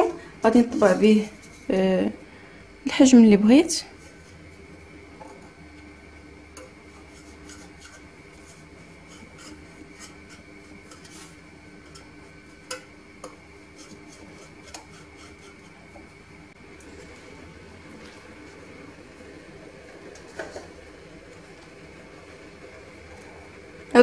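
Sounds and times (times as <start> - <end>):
metal mould scraping sponge cake: 6.6 - 12.8, 13.7 - 16.0.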